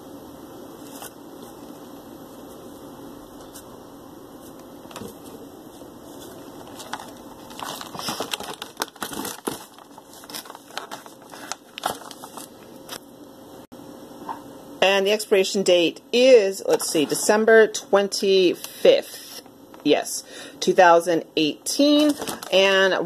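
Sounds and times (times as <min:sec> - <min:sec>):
plastic packs crinkling: 0:06.0 - 0:13.0, 0:22.0 - 0:22.8.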